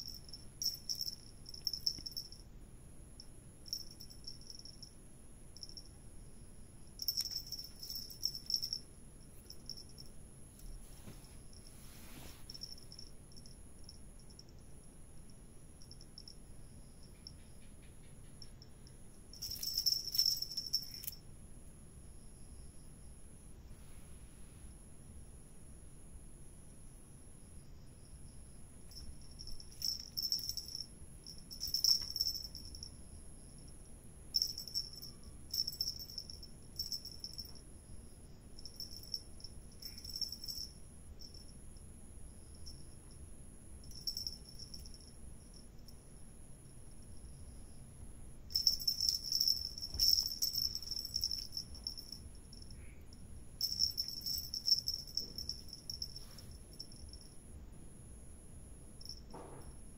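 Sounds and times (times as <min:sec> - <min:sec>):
cat toy jingling: 0:00.0 - 0:02.4, 0:03.6 - 0:04.9, 0:07.0 - 0:08.8, 0:19.3 - 0:21.2, 0:28.9 - 0:33.0, 0:34.3 - 0:37.6, 0:38.6 - 0:41.5, 0:43.8 - 0:45.1, 0:48.5 - 0:52.8, 0:53.6 - 0:57.3
cricket trilling: 0:00.0 - 0:10.8, 0:12.5 - 0:21.2, 0:27.2 - 0:59.9
faint high whine: 0:00.0 - 0:59.9.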